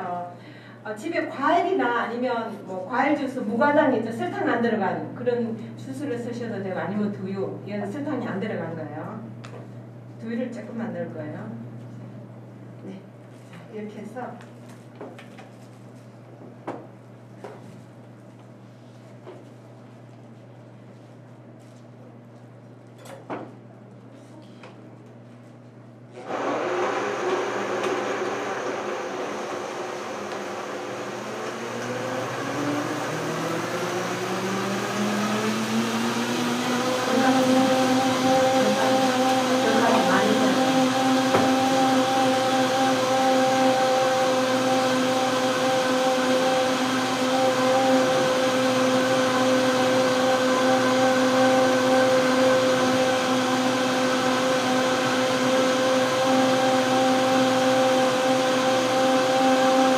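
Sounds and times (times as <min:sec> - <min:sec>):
blender motor running: 0:26.2 - 0:59.9.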